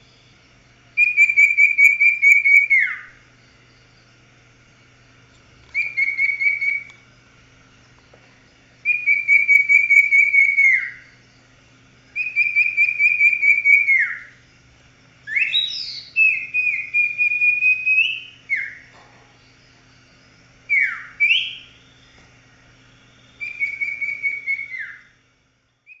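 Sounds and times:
bird singing trilled whistles: 1.0s - 3.2s, 5.7s - 7.0s, 8.8s - 11.2s, 12.1s - 14.4s, 15.2s - 22.2s, 22.9s - 25.2s.

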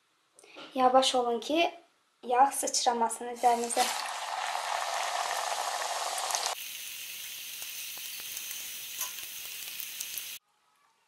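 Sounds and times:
hot oil sizzling: 3.3s - 10.4s.

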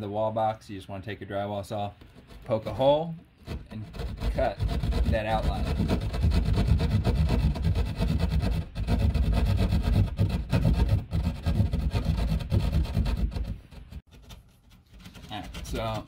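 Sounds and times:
hand saw cutting drywall: 3.4s - 16.0s.

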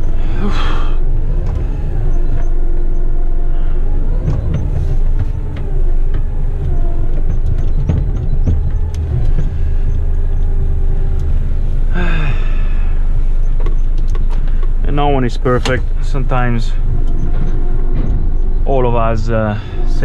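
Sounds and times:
rattles and clicks: 0.0s - 20.0s
truck diesel engine rumble: 0.0s - 20.0s.

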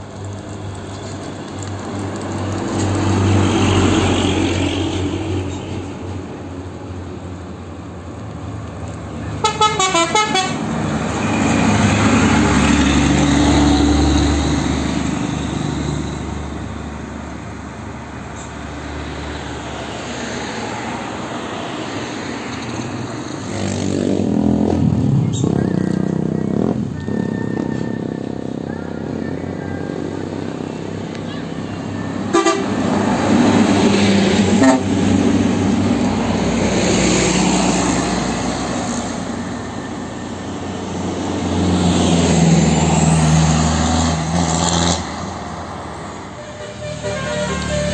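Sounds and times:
heavy trucks passing: 0.0s - 47.9s
multi-tone musical horn: 9.4s - 10.6s, 32.3s - 32.8s, 34.5s - 35.0s, 46.3s - 47.9s.

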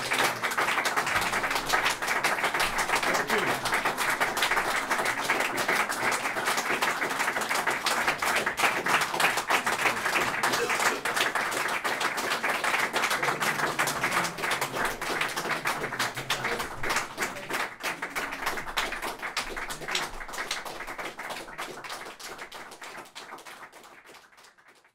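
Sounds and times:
audience applause: 0.0s - 24.9s.

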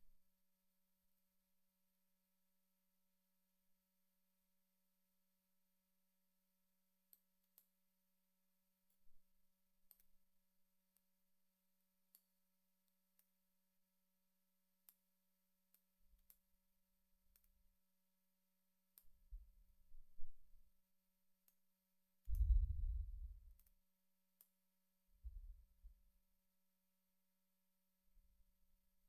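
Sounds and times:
brief low rumbles: 22.3s - 23.5s.

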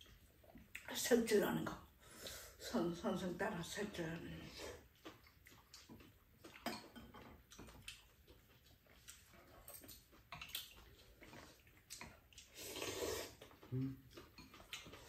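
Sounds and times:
noodles slurped and chewed: 3.8s - 15.0s.

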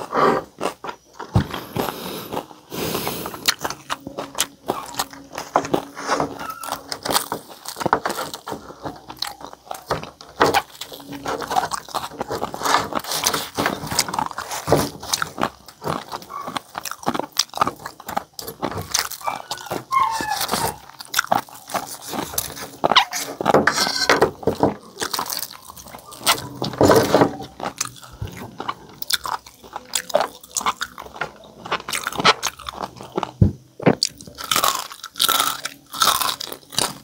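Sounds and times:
chewing and crunching crispy skin: 0.0s - 37.0s
clicks and crackles of tearing food: 0.0s - 37.0s.

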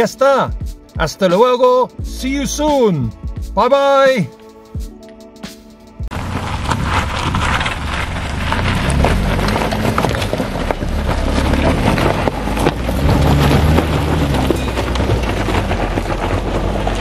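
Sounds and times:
car engine rumble: 6.0s - 17.0s
stones crunching under tyres: 6.1s - 17.0s.

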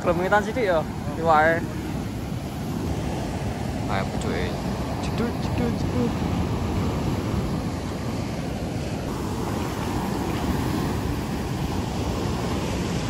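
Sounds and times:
surf breaking on shore: 0.0s - 13.0s
wind noise on microphone: 0.0s - 13.0s.

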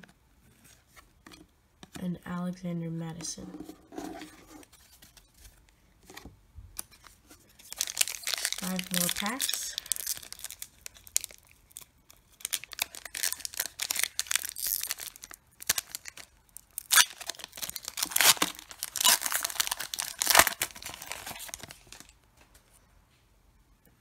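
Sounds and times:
foil wrapper tearing and crinkling: 6.9s - 22.1s.

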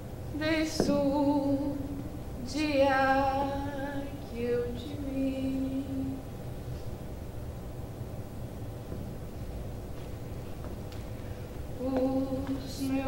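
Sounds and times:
woman singing: 0.3s - 6.2s, 11.8s - 13.0s.

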